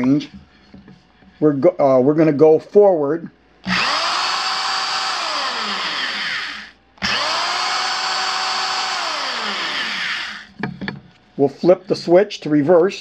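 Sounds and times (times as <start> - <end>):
hammer drill running: 3.6 - 10.5.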